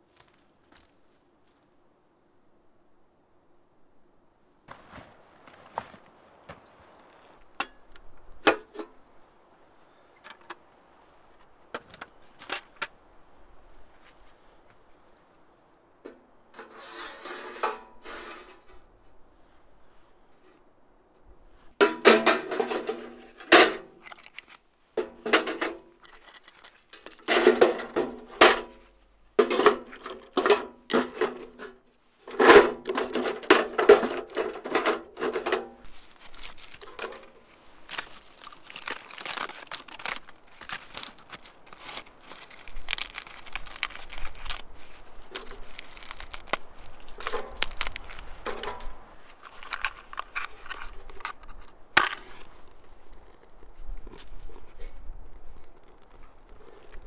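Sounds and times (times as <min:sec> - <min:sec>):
bark tinder crackling and rustling: 0:25.8 - 0:27.6, 0:35.8 - 0:57.0.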